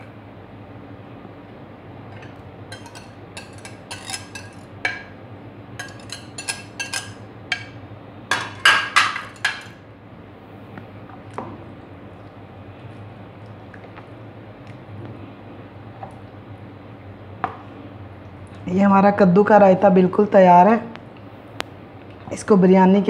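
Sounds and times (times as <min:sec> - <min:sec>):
whisk clinking on plate and bowl: 0:02.2 - 0:05.1, 0:05.8 - 0:09.7.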